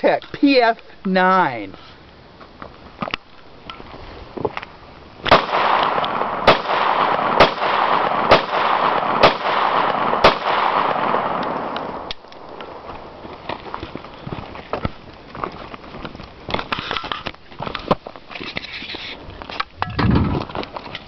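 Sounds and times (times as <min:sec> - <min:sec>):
pistol shots: 0:05.3 - 0:13.1.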